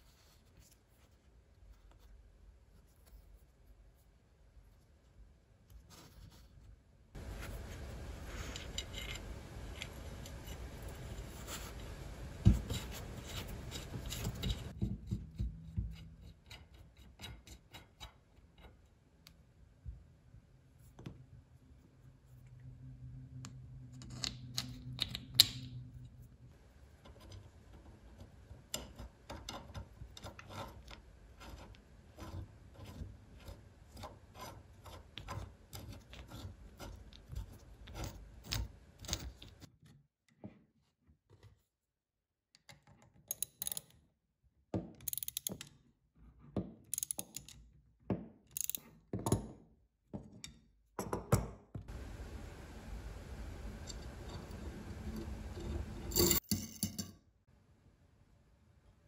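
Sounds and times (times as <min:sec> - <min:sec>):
clicks of pump parts handled: 0:48.6 - 0:48.8.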